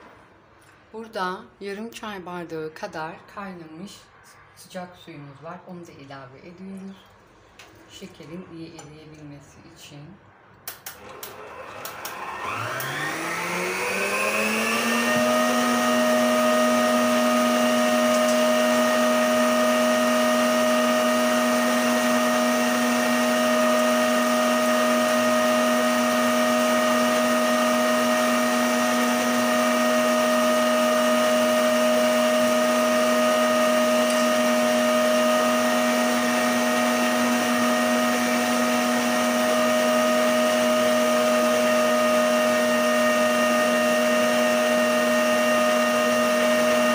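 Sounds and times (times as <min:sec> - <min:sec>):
stand mixer motor humming: 0:11.0 - 0:46.9.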